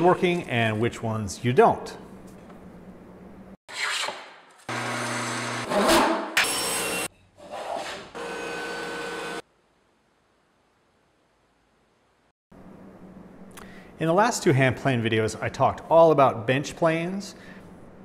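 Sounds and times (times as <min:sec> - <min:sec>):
table saw cutting board: 0:03.7 - 0:09.4.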